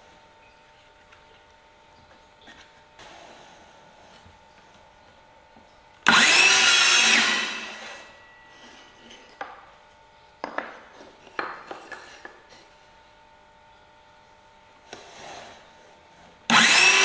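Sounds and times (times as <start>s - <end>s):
circular saw cutting wood: 6.1s - 9.2s, 16.5s - 17.0s.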